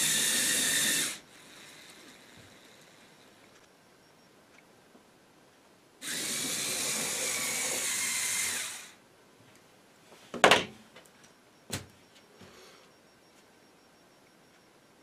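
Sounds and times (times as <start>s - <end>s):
robot motors whirring: 6.0s - 9.0s.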